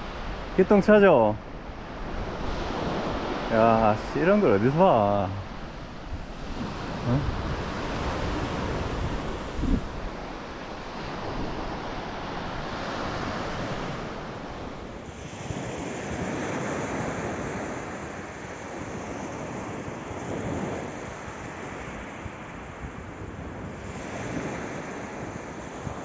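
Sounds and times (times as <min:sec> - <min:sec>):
surf washing onto beach: 0:00.0 - 0:26.0
wind buffeting microphone: 0:01.4 - 0:17.7.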